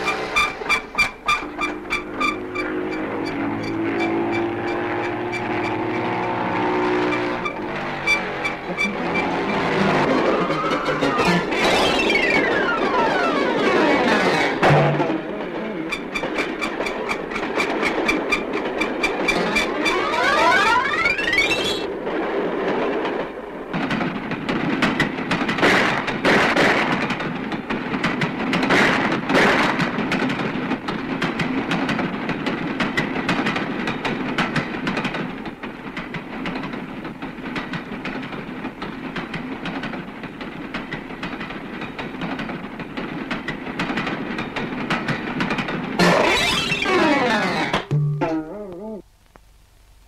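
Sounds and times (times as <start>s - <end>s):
train wheels clattering on rails: 0.0s - 47.9s.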